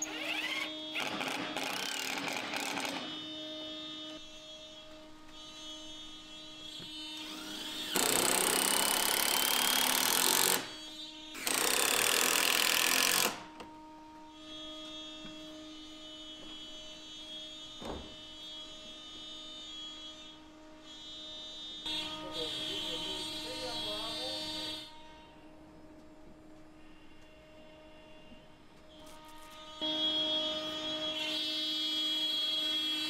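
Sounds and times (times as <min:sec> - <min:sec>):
cordless drill driving screws: 0:00.0 - 0:03.2, 0:07.2 - 0:10.7, 0:11.4 - 0:13.5.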